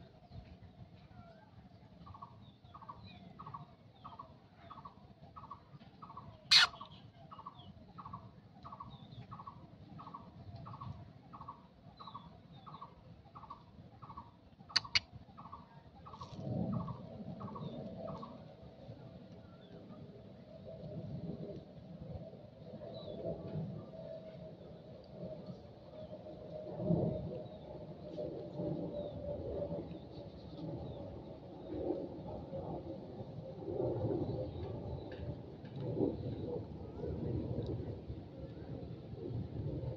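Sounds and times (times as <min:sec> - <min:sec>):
bird calling one short note: 0:06.5 - 0:06.8
sharp clicks: 0:14.8 - 0:15.0.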